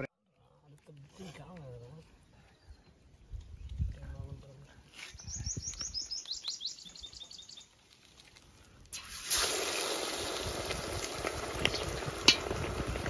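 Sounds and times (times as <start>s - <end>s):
bird chirping: 5.0s - 7.8s
chicken sizzling in hot oil: 7.8s - 13.0s
oil popping: 7.8s - 13.0s.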